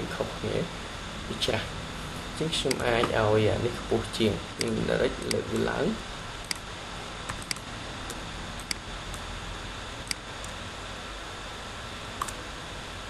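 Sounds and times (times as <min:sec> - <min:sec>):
microphone hiss: 0:00.0 - 0:13.0
computer mouse clicking: 0:02.7 - 0:03.1, 0:04.6 - 0:05.7, 0:06.4 - 0:06.7, 0:07.3 - 0:09.3, 0:10.0 - 0:10.6, 0:12.2 - 0:12.4.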